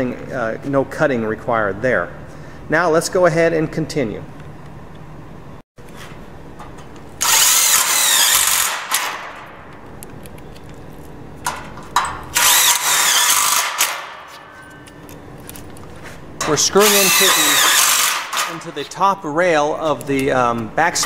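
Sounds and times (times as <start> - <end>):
cordless drill whining: 7.2 - 8.8, 12.4 - 13.9, 16.8 - 18.4.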